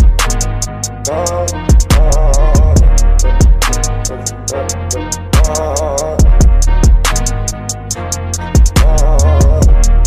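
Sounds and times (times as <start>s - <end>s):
hip hop beat: 0.0s - 10.0s
quick hi-hats: 0.0s - 10.0s
booming bass drum hits: 6.2s - 7.1s.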